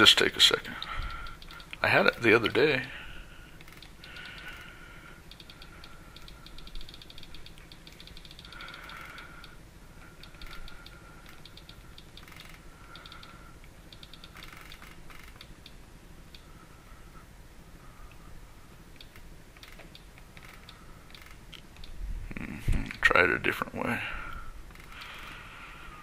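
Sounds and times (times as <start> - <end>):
click wheel ticking: 0.6 - 1.8, 3.6 - 4.7, 5.3 - 9.6, 10.2 - 13.3, 13.9 - 16.5, 19.0 - 22.0.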